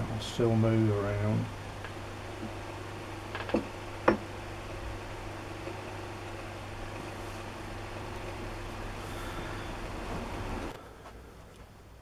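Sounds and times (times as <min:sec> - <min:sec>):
steady low hum: 0:00.0 - 0:12.0
sharp wooden knocks: 0:03.3 - 0:04.3.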